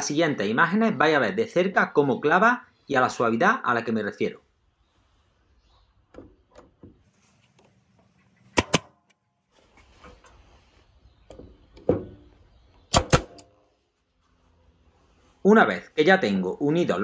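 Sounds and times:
nail gun firing: 8.6s - 9.0s, 12.9s - 13.5s.

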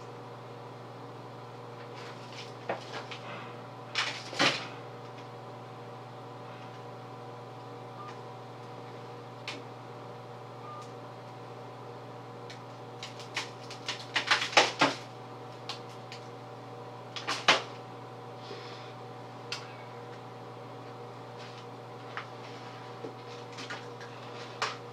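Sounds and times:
steady background hum: 0.0s - 24.9s
crackles and rustles of handling: 1.7s - 5.4s, 20.8s - 24.9s.

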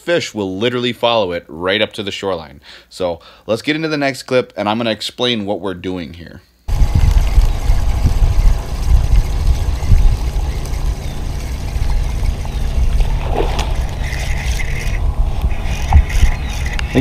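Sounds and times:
wind rumbling on microphone: 6.7s - 17.0s
fishing reel cranking: 13.6s - 17.0s.

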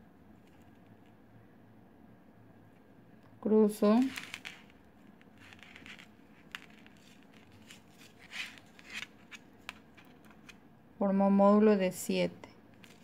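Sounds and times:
thread hissing through beads: 3.8s - 9.8s
beads clicking together: 3.9s - 9.8s.

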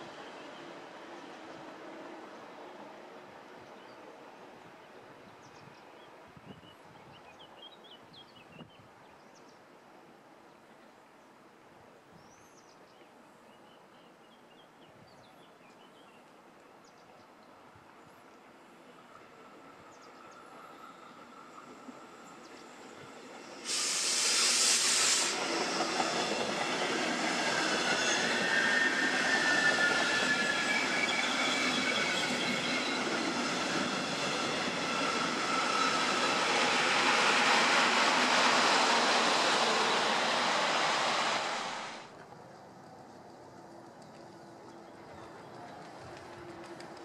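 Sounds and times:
train wheels rushing on rail: 19.4s - 47.0s
loud hiss: 23.4s - 31.9s, 34.7s - 42.1s.

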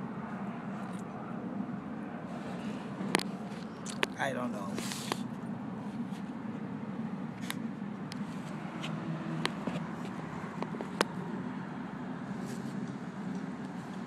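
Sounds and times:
sharp clicks of dog nosing soil: 4.8s - 5.2s.

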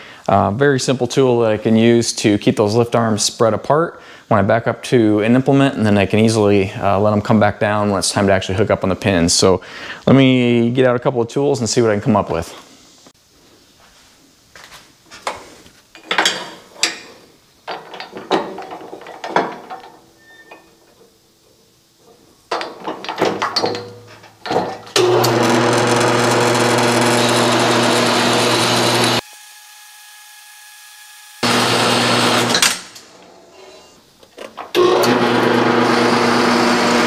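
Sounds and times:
metal pipe clanking: 22.5s - 25.4s
band saw running: 25.0s - 32.8s, 34.8s - 37.0s.

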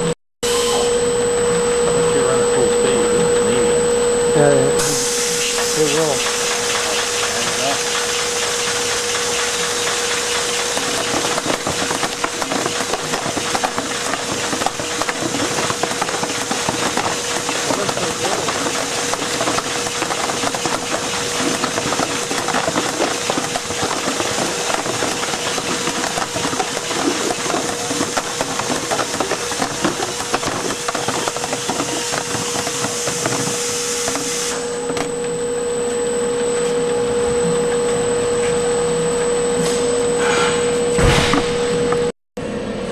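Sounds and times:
faint high whine: 0.0s - 9.2s
steady machine hum: 0.0s - 42.9s
containers rattling on conveyor: 4.9s - 34.5s.

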